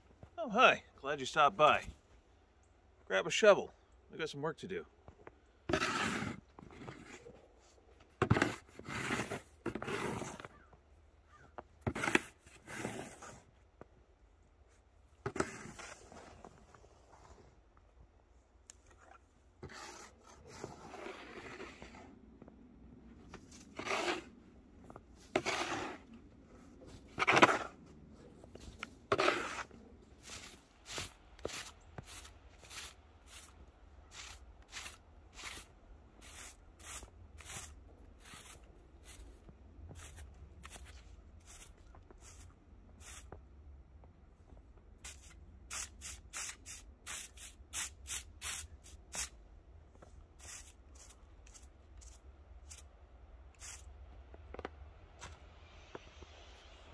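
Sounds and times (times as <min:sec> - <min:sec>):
broom sweeping snow: 0:05.7 - 0:07.8, 0:08.4 - 0:10.6, 0:12.0 - 0:13.5, 0:15.3 - 0:17.6, 0:19.6 - 0:22.1, 0:23.3 - 0:43.4, 0:45.0 - 0:49.4, 0:50.2 - 0:52.9, 0:53.6 - 0:53.9
shovel scraping snow: 0:05.7 - 0:10.6, 0:11.8 - 0:13.5, 0:15.2 - 0:17.5, 0:19.0 - 0:22.2, 0:23.2 - 0:43.4, 0:45.0 - 0:49.4, 0:50.3 - 0:52.9, 0:53.6 - 0:53.9.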